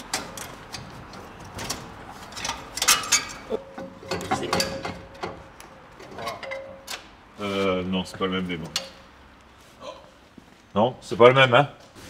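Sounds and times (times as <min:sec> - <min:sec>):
metal parts clinking: 0:01.4 - 0:05.4, 0:06.0 - 0:07.1.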